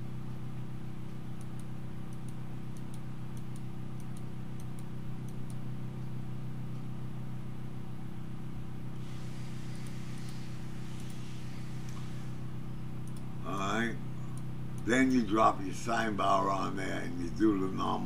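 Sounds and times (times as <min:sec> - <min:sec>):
low electrical hum: 0:00.0 - 0:18.0
computer mouse clicks: 0:01.4 - 0:05.6, 0:09.8 - 0:12.1, 0:13.0 - 0:13.3.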